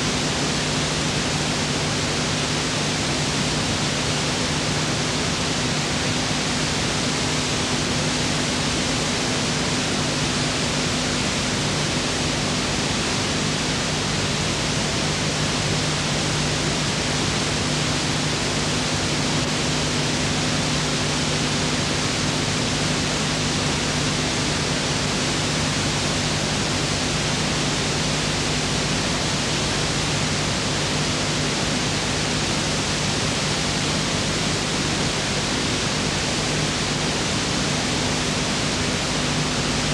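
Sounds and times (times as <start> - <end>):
low electrical hum: 0.0 - 39.9.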